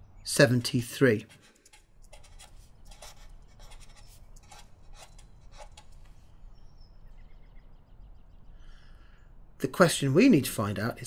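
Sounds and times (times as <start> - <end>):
marker scratching on paper: 1.2 - 6.2.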